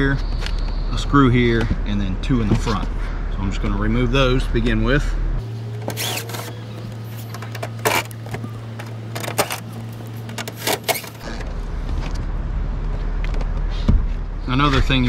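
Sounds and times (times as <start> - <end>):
clicks and knocks of tool and screws: 5.8 - 11.3.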